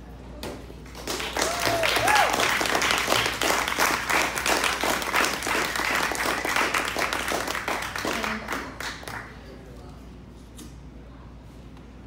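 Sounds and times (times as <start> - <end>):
audience applauding: 1.0 - 9.3.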